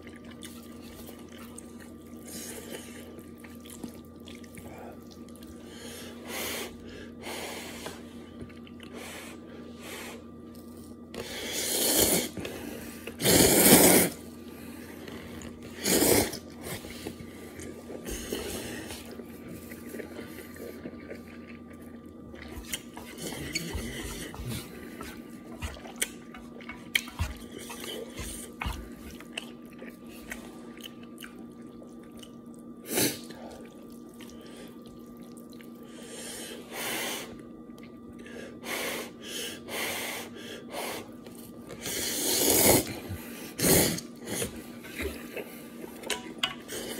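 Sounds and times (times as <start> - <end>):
faint steady hum: 0.0 - 46.9
person slurping noodles: 11.2 - 12.4, 13.1 - 14.3, 15.7 - 16.9, 41.8 - 42.9
soft chewing clicks: 19.0 - 32.7, 33.5 - 35.8.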